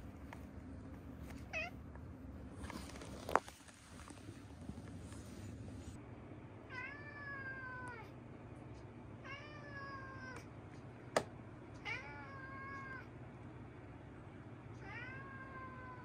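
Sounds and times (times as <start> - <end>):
rustling: 2.4 - 6.0.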